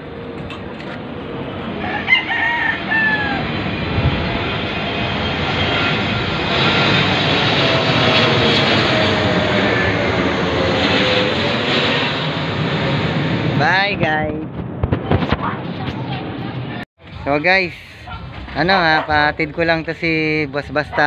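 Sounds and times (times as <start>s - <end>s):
jet airliner flying overhead: 0.0s - 21.0s
rooster crowing: 1.8s - 3.8s.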